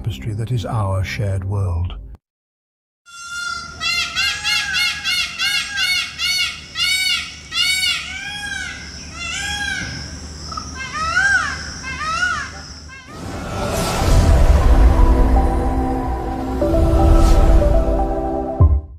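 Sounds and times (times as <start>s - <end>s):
peacock calling: 3.1s - 13.2s.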